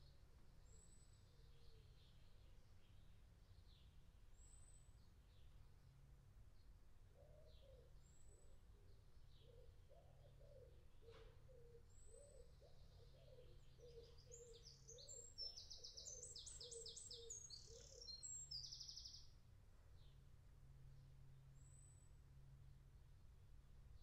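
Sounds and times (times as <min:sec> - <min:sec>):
faint low hum: 0:00.0 - 0:24.0
songbird trilling: 0:13.0 - 0:19.2.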